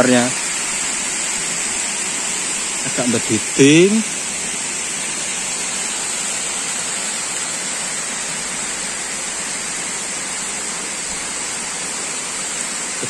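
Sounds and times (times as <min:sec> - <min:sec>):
high-pitched hiss: 0:00.0 - 0:13.0
waterfall rushing: 0:00.0 - 0:13.0.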